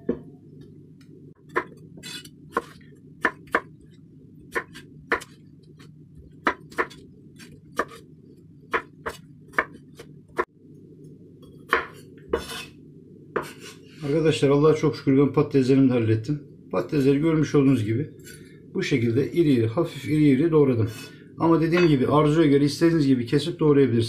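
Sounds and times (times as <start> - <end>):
knife chopping on wooden board: 1.5 - 3.8, 4.5 - 5.4, 6.4 - 8.0, 8.7 - 10.5, 11.7 - 12.7.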